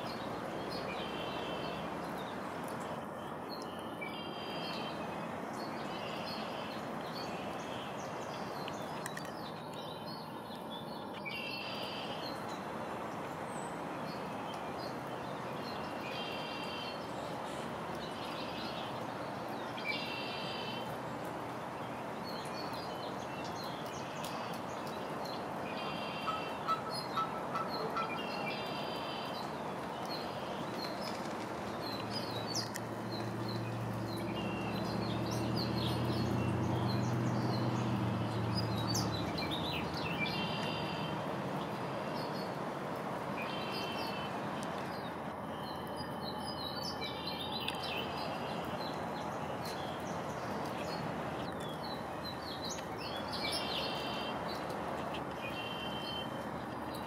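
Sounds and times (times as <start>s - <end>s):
small birds chirping: 13.3s - 42.6s, 43.4s - 57.0s.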